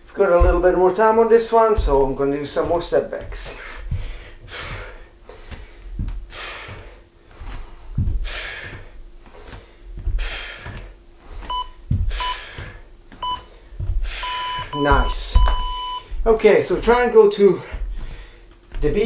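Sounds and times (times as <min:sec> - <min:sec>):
bare feet thudding on wooden floor: 0:00.0 - 0:19.0
hard breathing: 0:03.3 - 0:14.8, 0:17.4 - 0:18.6
interval timer beeps: 0:11.5 - 0:12.4, 0:13.2 - 0:13.5, 0:14.2 - 0:16.1.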